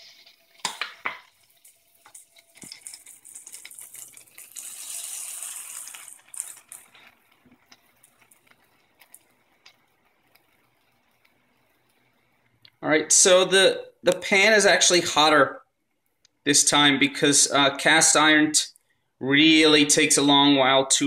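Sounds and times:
butter sizzling in skillet: 0:00.0 - 0:12.6.

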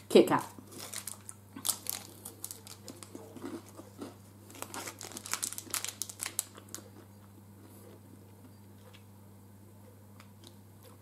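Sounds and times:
wrapper crinkling: 0:00.7 - 0:06.9
crunchy bites and chewing: 0:00.7 - 0:08.0.

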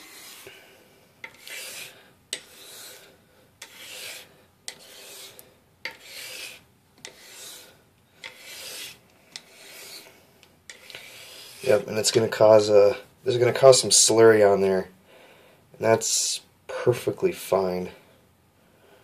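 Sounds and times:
razor blade scraping on whetstone: 0:00.0 - 0:00.5, 0:01.2 - 0:11.8.

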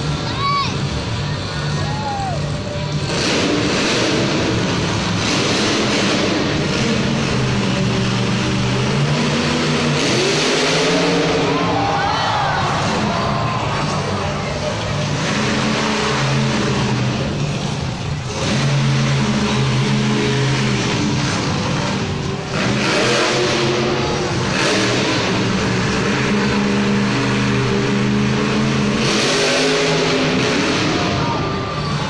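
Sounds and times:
monster truck engine revving: 0:00.0 - 0:32.0.

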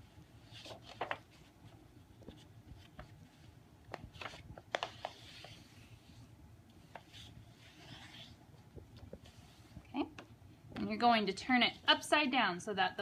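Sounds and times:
paper rustling: 0:00.4 - 0:06.2.

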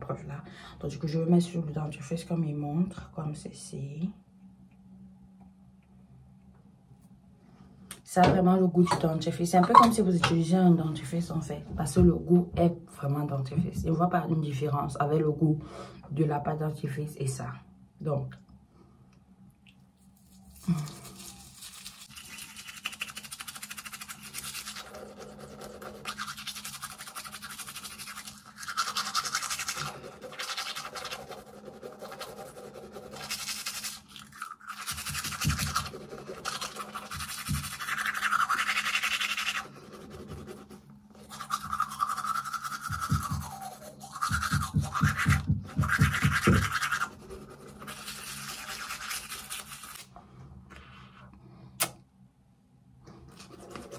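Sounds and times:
toothbrush scrubbing teeth: 0:19.7 - 0:50.1, 0:53.3 - 0:53.9.

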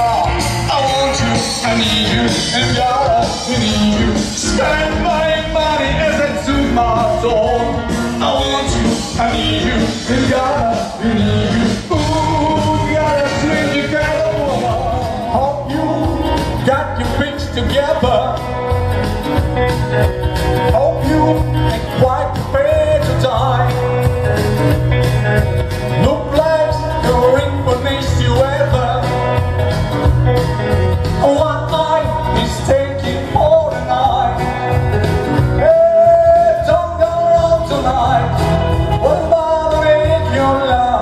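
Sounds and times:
man singing: 0:00.0 - 0:24.5, 0:25.9 - 0:41.0
instrumental accompaniment: 0:00.0 - 0:41.0.

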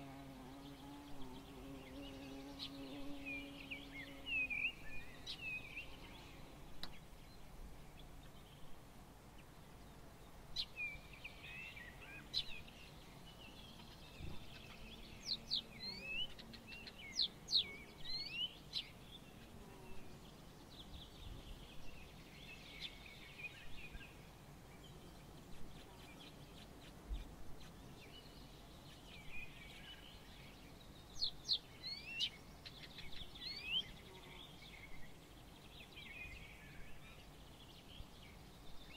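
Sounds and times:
faint steady hiss: 0:00.0 - 0:38.9
songbirds chirping and twittering: 0:00.0 - 0:38.9.

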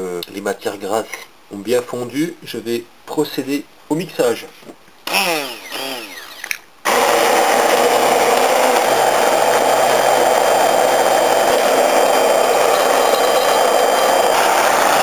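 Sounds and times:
immersion blender running: 0:05.1 - 0:15.0.

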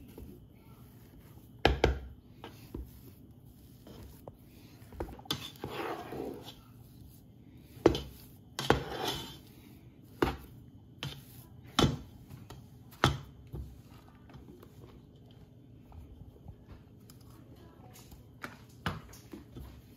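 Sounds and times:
squelching and scraping strokes: 0:00.0 - 0:15.9.

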